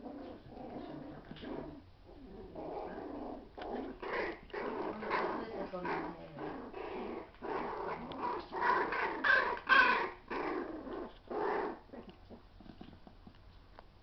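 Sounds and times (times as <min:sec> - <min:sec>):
puppies growling: 0:00.0 - 0:13.1.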